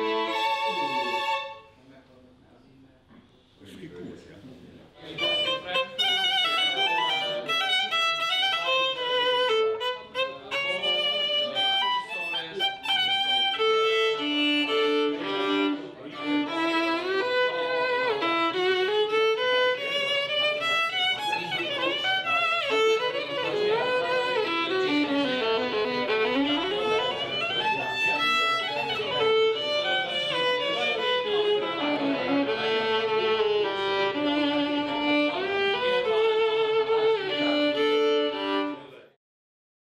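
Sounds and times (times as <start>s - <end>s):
violin melody with vibrato: 0.0s - 1.8s, 5.0s - 39.1s.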